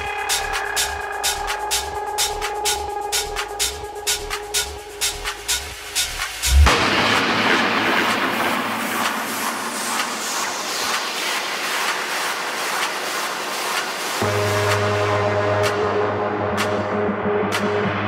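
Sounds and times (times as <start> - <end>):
hi-hat ticks: 0.0 - 6.6
bass and synth notes: 0.0 - 10.2, 14.2 - 18.0
techno music: 0.0 - 18.0
white-noise filter sweep: 6.3 - 18.0.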